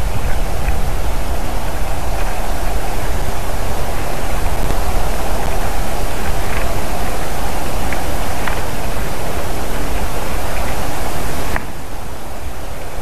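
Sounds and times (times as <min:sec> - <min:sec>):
wind noise on microphone: 0:00.0 - 0:13.0
faint high ticks: 0:11.5 - 0:11.8.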